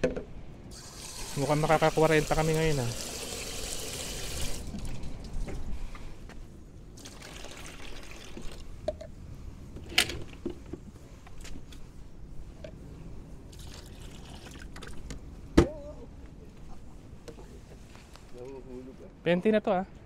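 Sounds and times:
water pouring and splashing: 0:00.7 - 0:05.3, 0:07.0 - 0:08.8, 0:13.5 - 0:15.1.

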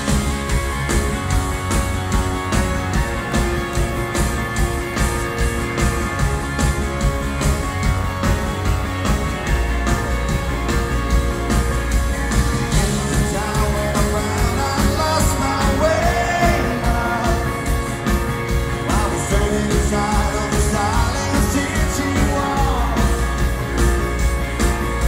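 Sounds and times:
live rock band playing: 0:00.0 - 0:25.0
man singing: 0:12.7 - 0:18.2, 0:18.8 - 0:23.5.

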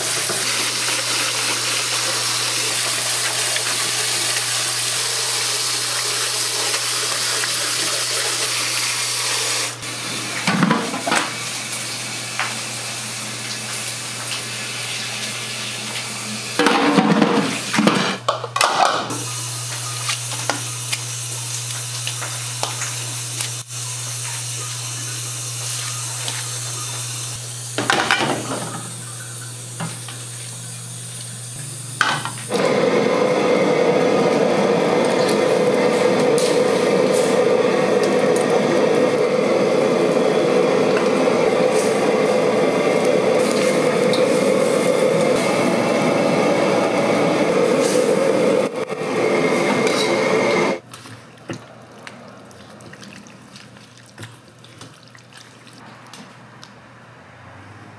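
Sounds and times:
steady kitchen hiss: 0:00.0 - 0:51.1
kitchen clatter: 0:10.3 - 0:11.4, 0:16.6 - 0:19.2, 0:27.8 - 0:30.2
splashing water: 0:50.8 - 0:56.2.

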